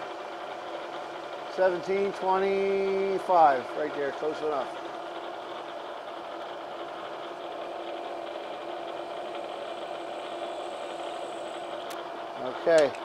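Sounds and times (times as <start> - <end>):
milling machine humming: 0.0 - 13.0.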